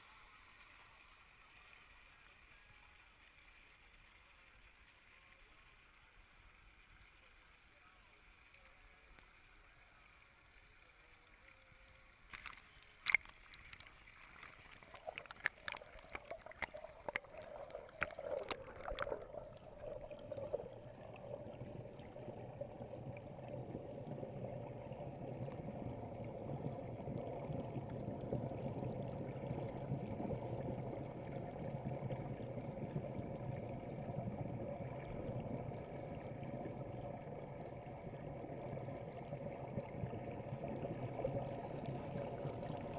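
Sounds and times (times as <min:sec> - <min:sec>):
sharp clicks and splashes: 0:12.2 - 0:21.0
bubbling rush: 0:12.3 - 0:42.9
muffled underwater churning: 0:12.3 - 0:42.9.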